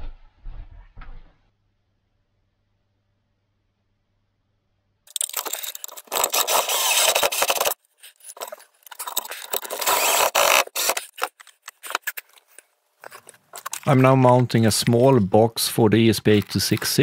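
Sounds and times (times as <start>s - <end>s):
parts and tools clicking: 5.1s - 15.2s
cables rustling and scraping: 5.1s - 17.0s.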